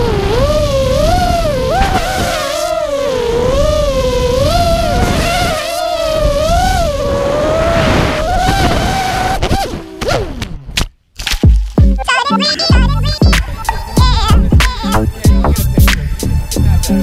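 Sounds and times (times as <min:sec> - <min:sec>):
wind rush on microphone: 0:00.0 - 0:10.4, 0:13.4 - 0:17.0
drone motors buzzing whine: 0:00.0 - 0:10.8.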